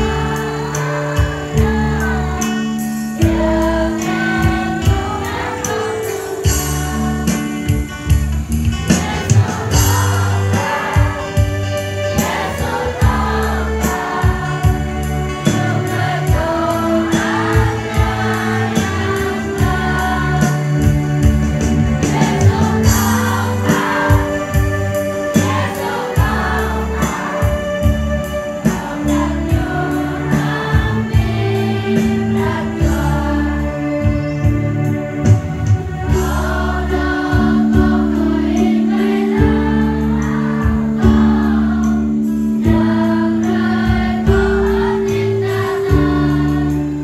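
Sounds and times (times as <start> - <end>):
steady beat: 0.0 - 33.5
children's choir singing a hymn: 0.0 - 47.0.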